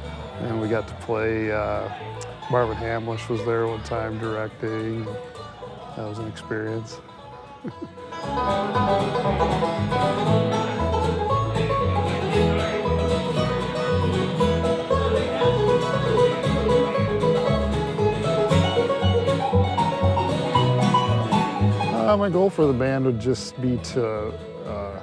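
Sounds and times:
bluegrass band playing: 0.0 - 25.0
picked banjo: 0.0 - 25.0
upright bass line: 6.0 - 25.0.

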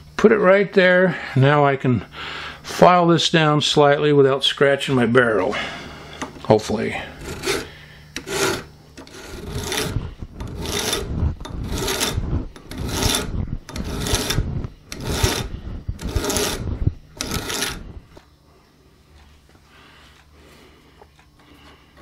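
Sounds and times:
hand file scraping metal: 7.0 - 18.2.

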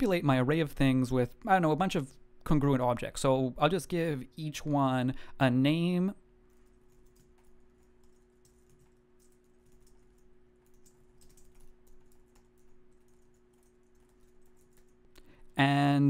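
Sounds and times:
low steady hum: 0.0 - 16.0
typing on keyboard: 6.5 - 15.3.

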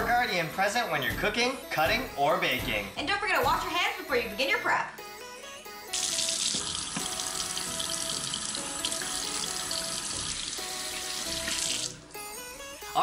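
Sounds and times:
faucet running into metal sink: 5.9 - 12.0
hands rinsed under water: 6.0 - 12.0.

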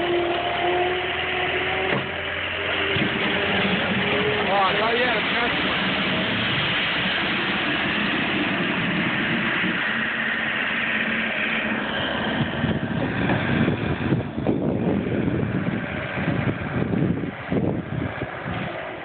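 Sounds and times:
loader engine running: 0.0 - 19.0
wind buffeting microphone: 5.1 - 19.0.

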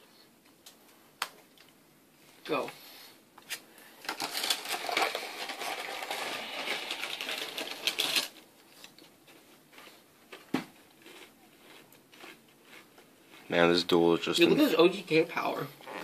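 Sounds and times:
cards being shuffled: 3.4 - 8.4.

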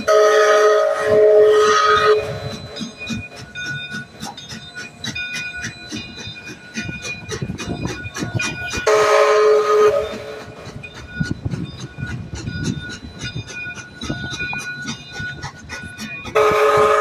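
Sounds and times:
steam whistle blast: 0.0 - 2.7, 8.8 - 10.4, 16.3 - 17.0
low rumble of train: 0.0 - 17.0
bell ringing: 1.8 - 9.4, 10.0 - 17.0.

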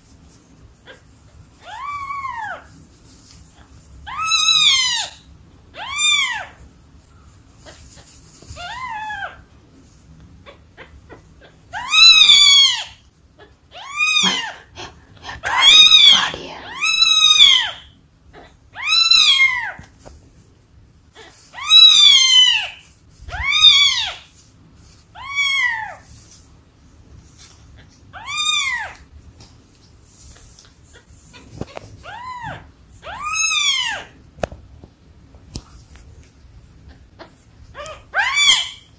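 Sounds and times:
kitten meowing shrilly: 15.3 - 17.8, 21.6 - 24.2, 38.2 - 38.9.

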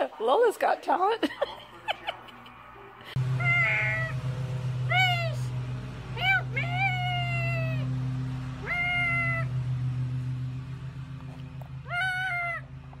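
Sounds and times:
steady low hum: 3.1 - 13.0.

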